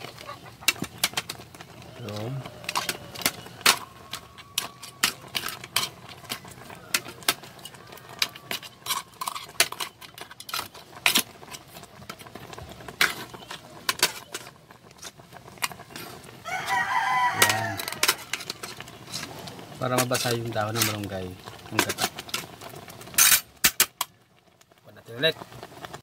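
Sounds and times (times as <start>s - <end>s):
wood fire crackling: 0.0s - 26.0s
rooster crowing: 1.8s - 5.0s, 6.3s - 8.9s, 16.4s - 18.5s.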